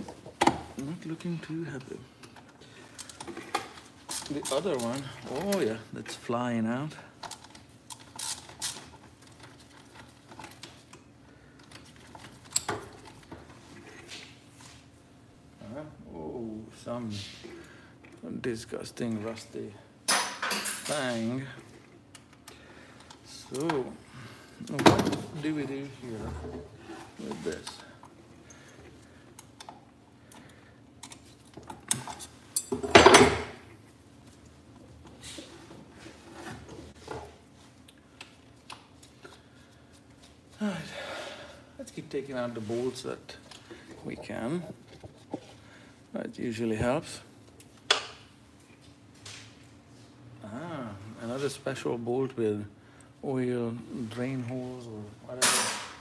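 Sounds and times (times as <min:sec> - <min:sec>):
metal tools clattering on workbench: 0:20.1 - 0:21.0, 0:55.4 - 0:56.0.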